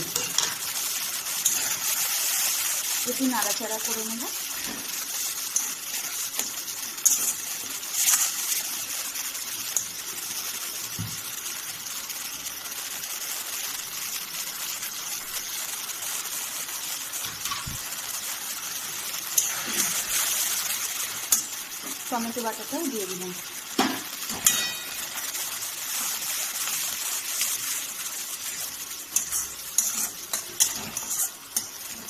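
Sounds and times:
metal spatula scraping and tapping: 0:00.0 - 0:00.6, 0:01.4 - 0:01.8, 0:06.4 - 0:07.4, 0:23.8 - 0:25.1, 0:29.1 - 0:32.0
spice paste sizzling in hot oil: 0:00.0 - 0:32.0.

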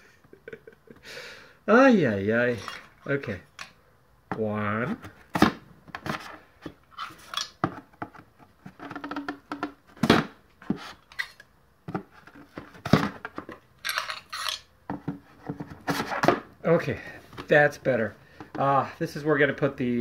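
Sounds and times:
metal caps clinking on metal: 0:13.8 - 0:14.7.

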